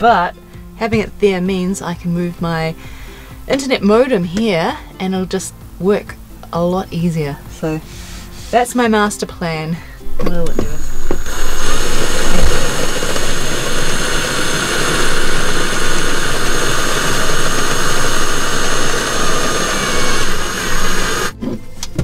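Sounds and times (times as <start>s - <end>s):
cordless drill boring into wood: 10.4s - 21.4s.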